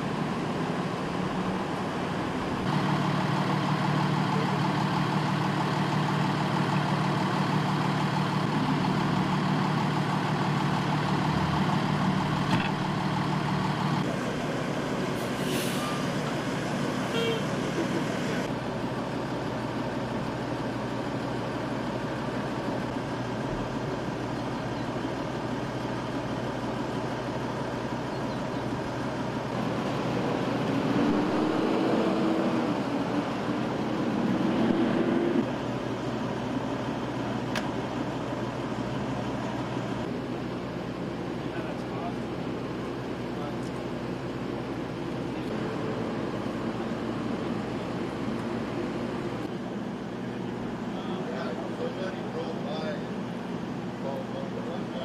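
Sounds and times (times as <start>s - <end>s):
diesel engines idling: 0.0s - 55.0s
street traffic noise: 0.0s - 55.0s.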